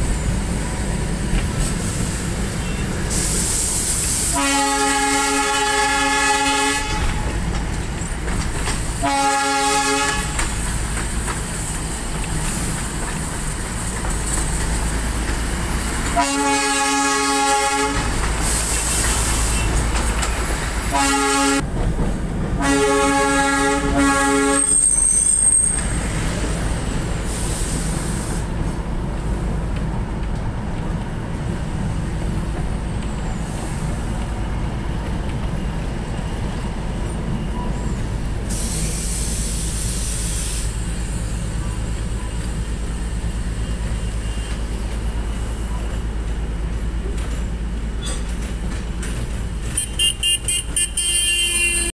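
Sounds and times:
train running rumble: 0.0 - 51.9
train horn: 4.3 - 7.3, 9.0 - 10.4, 16.2 - 18.2, 20.9 - 21.7, 22.6 - 25.1, 49.8 - 51.9
high squeal: 24.6 - 26.1.

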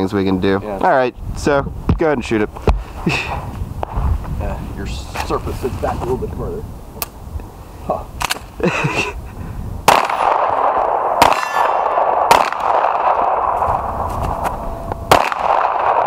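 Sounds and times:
pistol shots: 9.8 - 13.8, 15.0 - 16.0.

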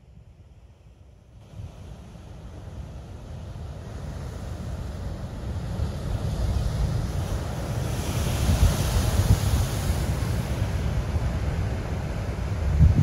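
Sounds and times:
wind buffeting microphone: 3.9 - 13.0
surf breaking on rocky shore: 6.0 - 13.0.

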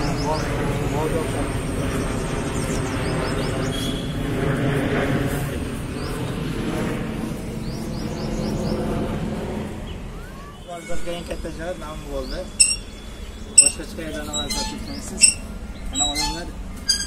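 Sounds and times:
highway traffic rumble: 0.0 - 17.0
small birds chirping: 9.8 - 17.0.

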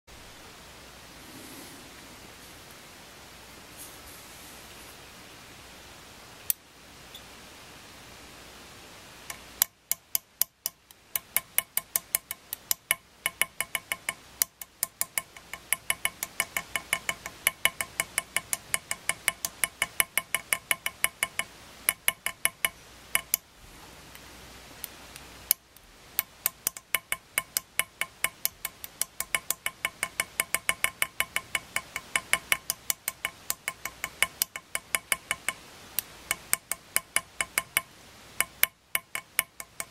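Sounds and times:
hammer tapping metal punch: 9.3 - 23.4, 26.2 - 35.6, 36.3 - 39.9.

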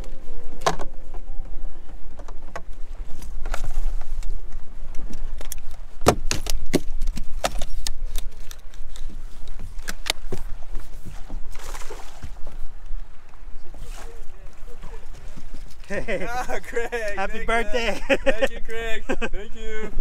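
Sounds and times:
wind rumbling on microphone: 0.0 - 20.0
net splashing into water: 11.5 - 12.4.

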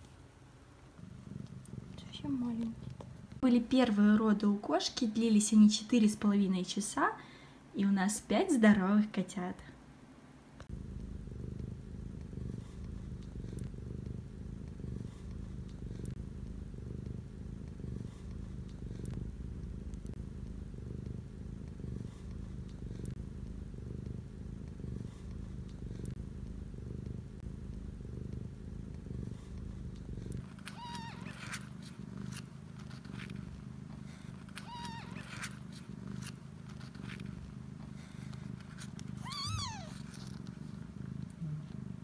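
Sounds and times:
cat purring: 0.0 - 7.0, 10.6 - 42.0
kittens high squeaks: 30.7 - 31.5, 34.6 - 35.4, 39.2 - 40.0.

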